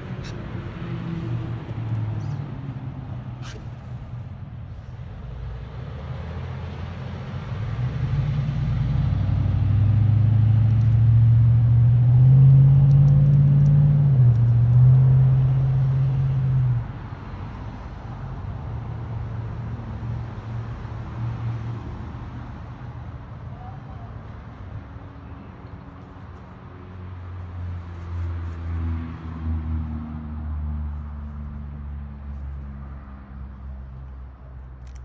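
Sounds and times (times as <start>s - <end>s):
engine humming: 0.0s - 35.0s.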